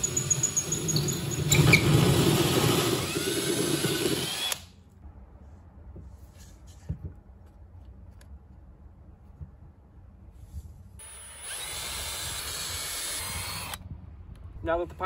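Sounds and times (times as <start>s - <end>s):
drill cutting into drywall: 0.0s - 4.7s, 11.0s - 13.8s.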